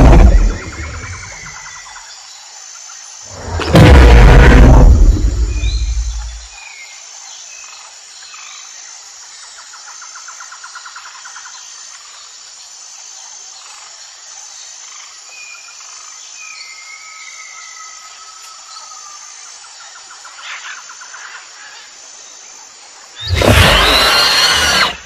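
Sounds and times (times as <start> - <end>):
deep loud rumble: 0.0 - 1.2, 3.3 - 6.5
crickets chirping: 0.0 - 25.0
bird chirps: 5.2 - 6.5.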